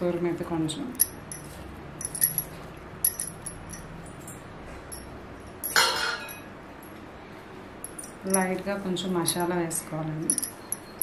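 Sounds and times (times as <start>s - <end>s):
kitchen utensils clinking: 5.5s - 6.5s.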